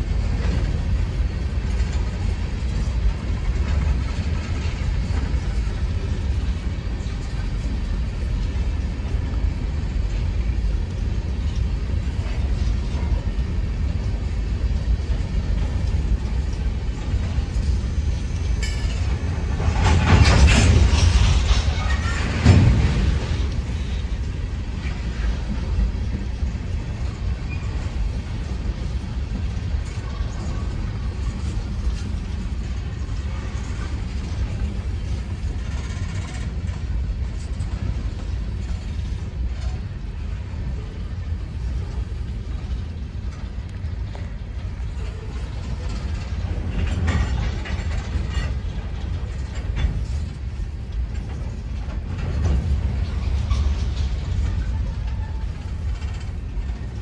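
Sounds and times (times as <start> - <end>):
rail cars knocking and rattling: 0.0 - 57.0
train wheels rumbling on rails: 0.0 - 57.0.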